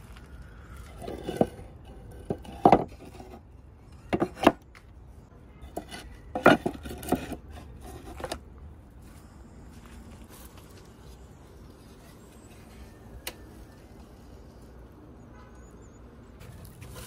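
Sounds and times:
wooden boards clattering: 0:01.0 - 0:03.4, 0:05.7 - 0:08.4.

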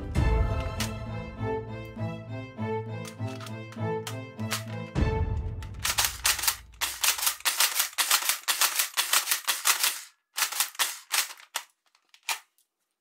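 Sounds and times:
toy gun plastic clicks: 0:03.0 - 0:04.9, 0:05.7 - 0:12.6.

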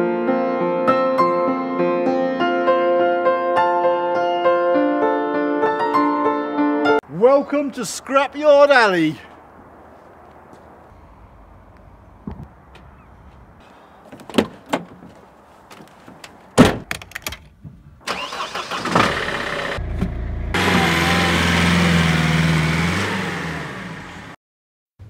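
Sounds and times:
sharp clunks: 0:14.1 - 0:15.2, 0:16.1 - 0:17.8
diesel van engine running: 0:18.1 - 0:24.4.

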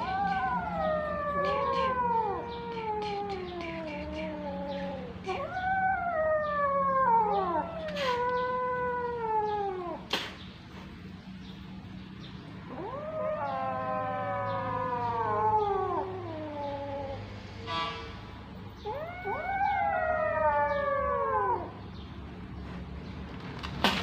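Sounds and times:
kittens mewing: 0:00.0 - 0:10.4, 0:12.7 - 0:17.4, 0:18.8 - 0:21.8
sharp click: 0:10.1 - 0:10.4.

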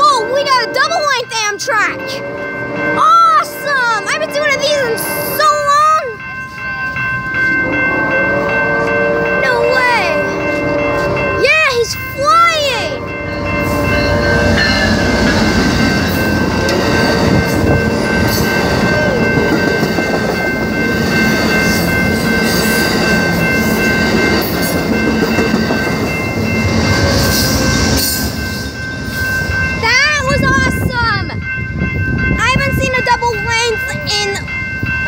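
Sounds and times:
high steady tones: 0:00.0 - 0:35.0
train wheels rushing on rails: 0:00.0 - 0:35.0.

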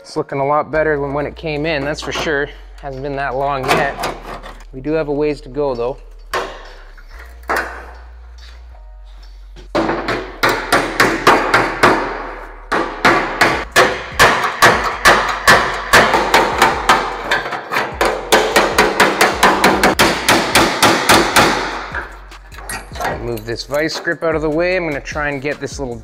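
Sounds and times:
hammer striking sheet metal: 0:09.8 - 0:22.1.

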